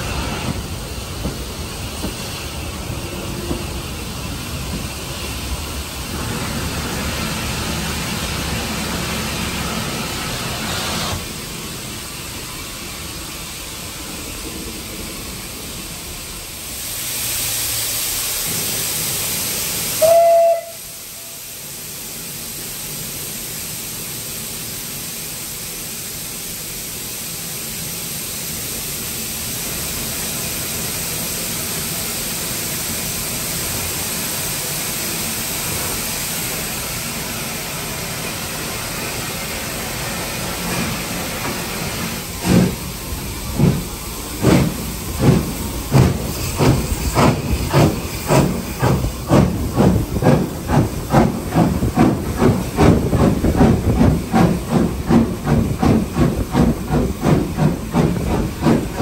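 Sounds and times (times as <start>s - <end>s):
steam locomotive hissing steam: 0.0s - 59.0s
steam whistle blast: 20.0s - 21.5s.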